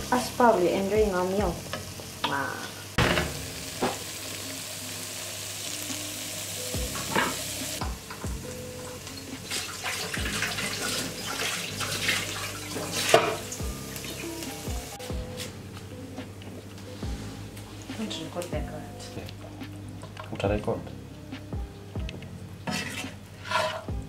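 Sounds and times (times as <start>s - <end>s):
food sizzling in a frying pan: 0.0s - 20.4s
background music with a beat: 5.8s - 11.7s, 12.8s - 22.6s, 23.2s - 24.0s
spatula stirring in pan: 22.7s - 23.9s.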